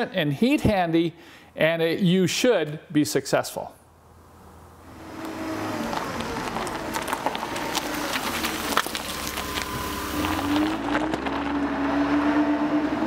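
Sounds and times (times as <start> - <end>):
motor vehicle running: 4.3 - 13.0.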